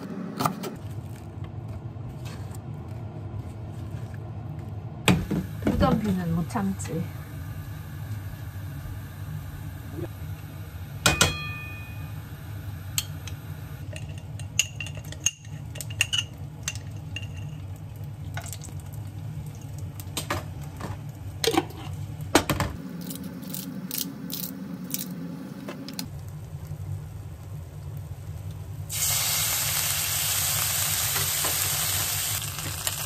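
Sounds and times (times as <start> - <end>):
steady low hum: 0.0 - 28.9
metal spoons clinking on pan: 14.0 - 17.6.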